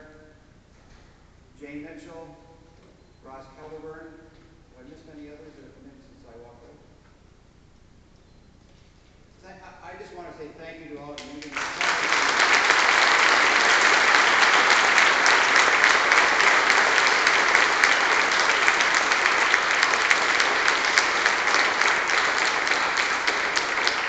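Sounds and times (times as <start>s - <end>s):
audience applauding: 11.2s - 24.0s.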